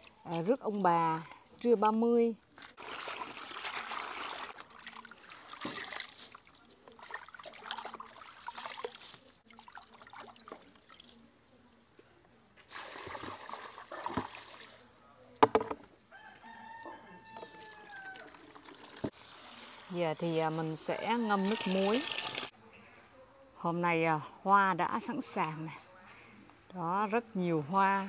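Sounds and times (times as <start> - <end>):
water splashing in a plastic basin: 2.4 - 11.3, 12.7 - 14.8, 17.6 - 22.5
rooster crowing: 16.1 - 18.5, 21.0 - 22.3.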